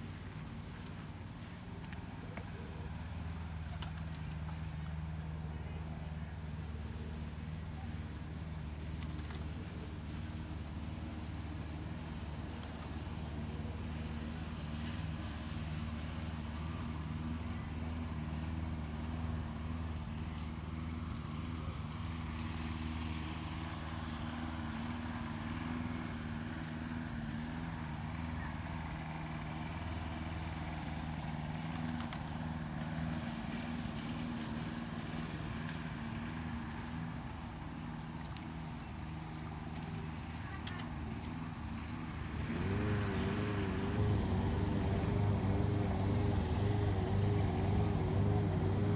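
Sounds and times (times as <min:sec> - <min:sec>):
low mechanical hum: 0:00.0 - 0:48.9.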